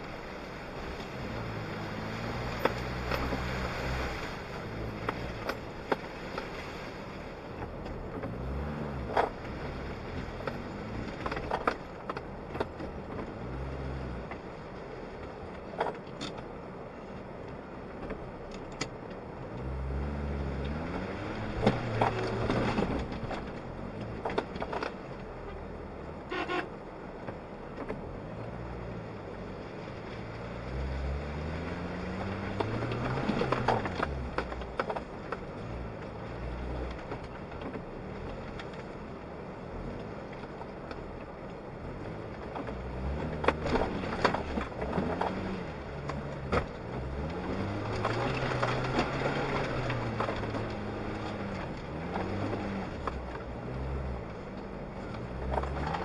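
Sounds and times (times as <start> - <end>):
car engine revving: 0.0 - 14.5, 19.5 - 24.8, 28.1 - 56.0
car body knocking and rattling: 9.0 - 13.4, 21.4 - 25.3, 32.2 - 39.1, 40.0 - 53.6.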